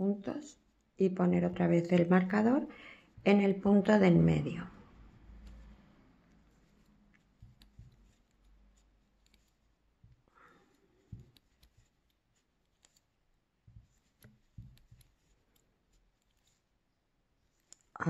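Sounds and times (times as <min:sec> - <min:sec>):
crochet hook clicking and rustling: 0:05.2 - 0:16.8, 0:17.4 - 0:18.0.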